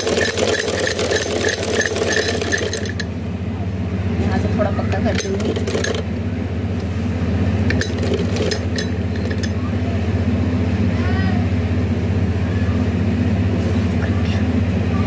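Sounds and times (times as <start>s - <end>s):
sewing machine running: 0.0s - 3.1s, 5.1s - 6.1s, 7.7s - 9.5s.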